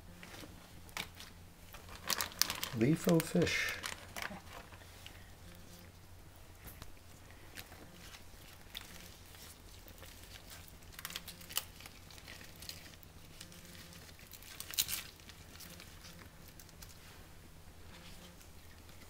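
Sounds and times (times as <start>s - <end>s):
banana leaf rustling and crinkling: 0.1s - 6.0s, 6.6s - 19.0s
sharp leaf crackles: 0.9s - 5.0s, 7.5s - 17.2s.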